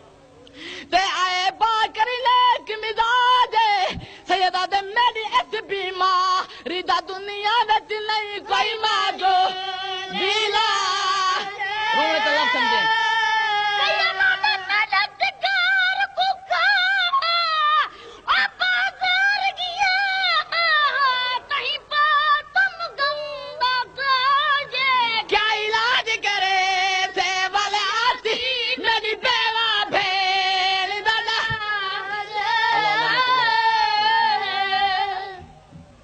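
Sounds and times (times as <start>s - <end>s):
man chanting into a microphone: 31.2s - 35.5s.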